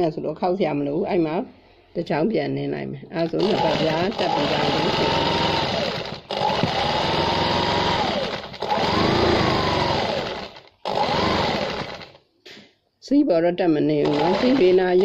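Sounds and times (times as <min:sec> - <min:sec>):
sewing machine stitching: 0:03.2 - 0:12.2, 0:14.0 - 0:15.0.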